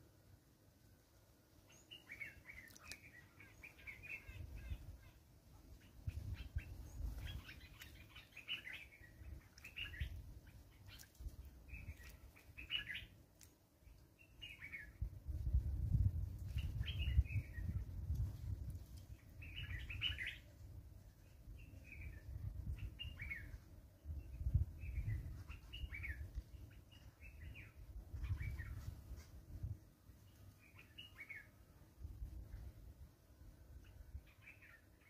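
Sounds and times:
birds chirping: 0:01.7 - 0:05.2, 0:05.8 - 0:13.2, 0:19.3 - 0:20.5.

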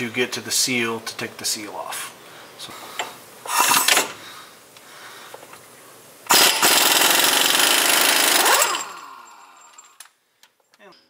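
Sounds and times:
impact wrench hammering: 0:06.3 - 0:09.3.

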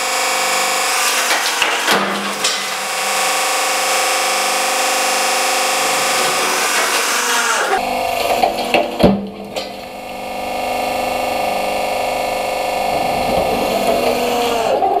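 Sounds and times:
hydraulic pump humming: 0:00.0 - 0:15.0
wooden block cracking: 0:01.0 - 0:02.9.

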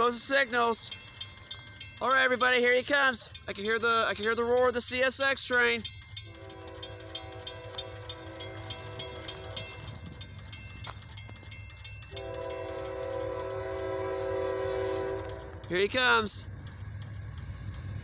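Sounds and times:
crossing bell dinging: 0:00.0 - 0:16.4
low roar of train: 0:00.0 - 0:18.0
train horn blasts: 0:06.3 - 0:09.9, 0:12.1 - 0:15.6.

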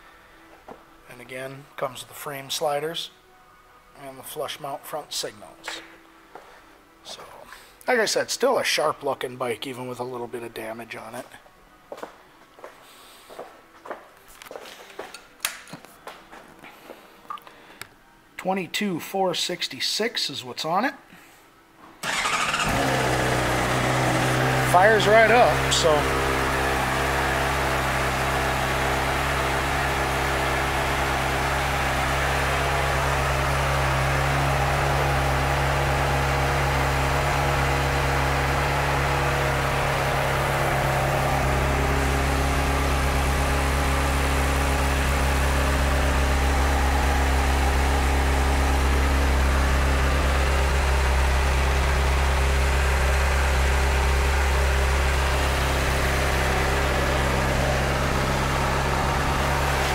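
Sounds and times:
motorcycle engine idling: 0:22.0 - 0:59.9.

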